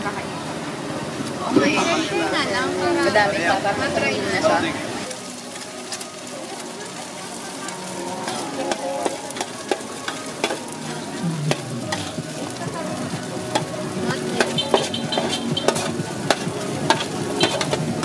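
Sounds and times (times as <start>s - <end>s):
noodles sizzling in a pan: 1.5s - 18.0s
metal spatula scraping a pan: 8.2s - 10.9s, 11.5s - 12.2s, 13.5s - 18.0s.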